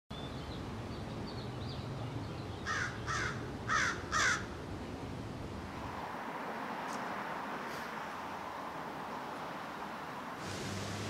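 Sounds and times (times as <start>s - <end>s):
outdoor background hiss: 0.1s - 11.0s
harsh bird calls: 2.6s - 4.5s.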